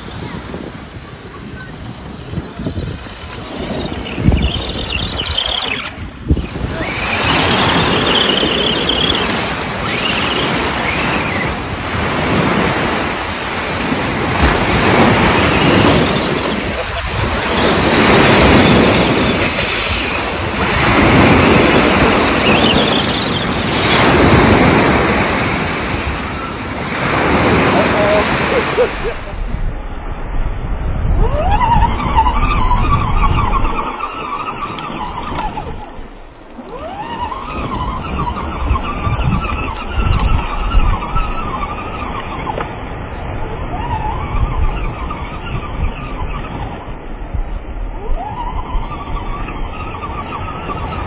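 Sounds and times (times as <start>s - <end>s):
rc truck motor whining: 0.0s - 11.8s
wheels rumbling on gravel: 0.0s - 31.5s
surf breaking: 0.0s - 32.2s
wind buffeting microphone: 0.0s - 51.0s.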